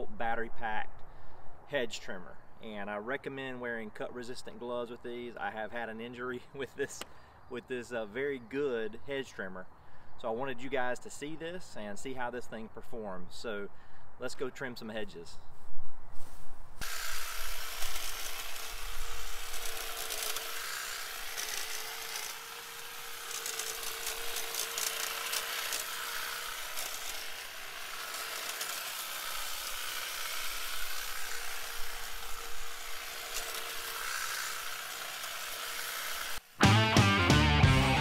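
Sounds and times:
hedge trimmer running: 16.8s - 38.0s.

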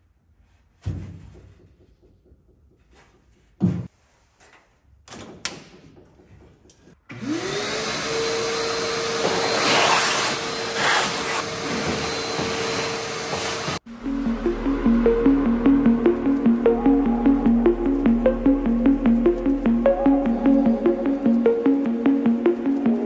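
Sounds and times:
shop vacuum motor whine: 7.1s - 13.8s.

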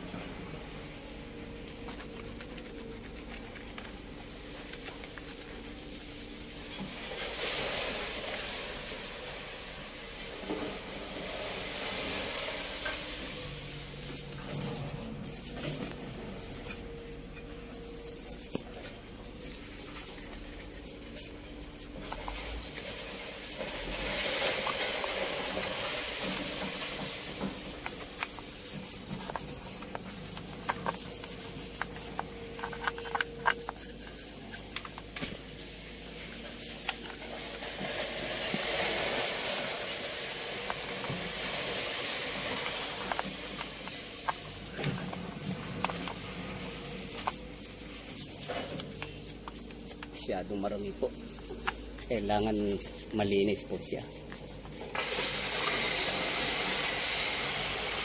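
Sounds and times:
scraping battery terminals: 21.8s - 35.2s, 40.7s - 56.8s.

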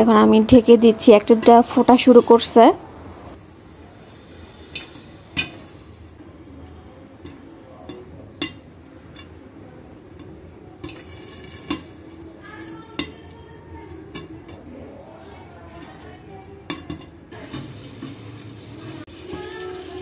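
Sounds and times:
oil sizzling: 0.0s - 20.0s
popcorn kernels popping: 4.7s - 6.1s, 7.2s - 9.4s, 10.0s - 14.7s, 15.8s - 18.2s.

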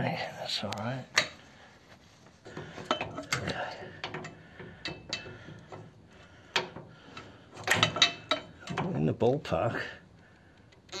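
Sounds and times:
hand tools clicking on metal: 2.5s - 10.9s.

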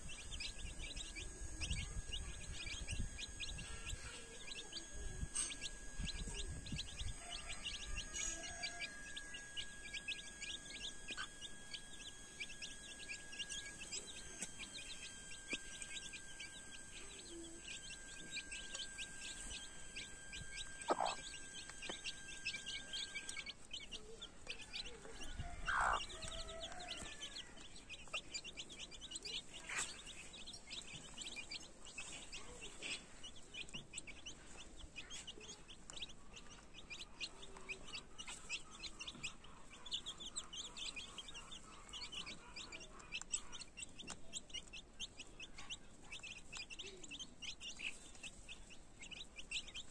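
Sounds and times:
loud single chick calls: 0.0s - 29.9s
chicks peeping: 0.0s - 49.9s.

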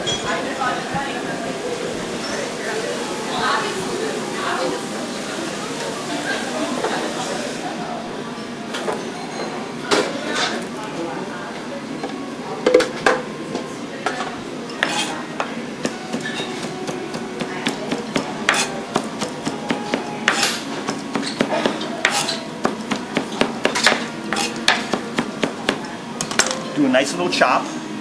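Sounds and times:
knife chopping on cutting board: 15.8s - 25.8s.

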